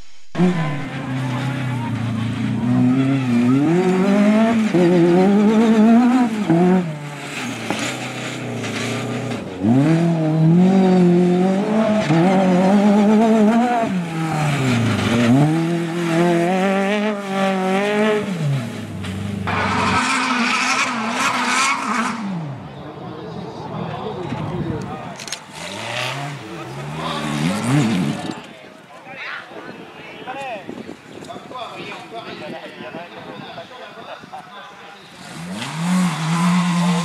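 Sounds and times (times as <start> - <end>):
rally car engine revving: 0.2 - 22.9, 24.4 - 28.5, 35.1 - 37.0.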